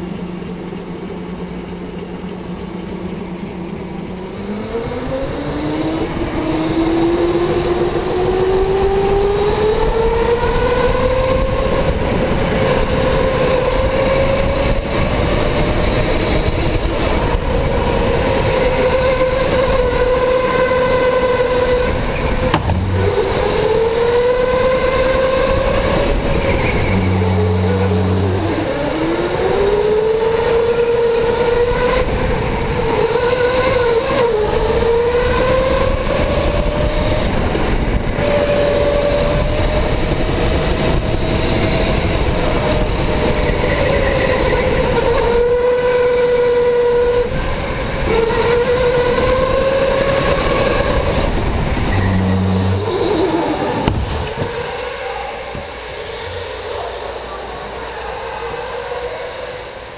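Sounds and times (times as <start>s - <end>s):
electric go-kart motor whining: 0.0s - 59.9s
steady rushing noise: 21.1s - 29.5s, 50.3s - 59.9s.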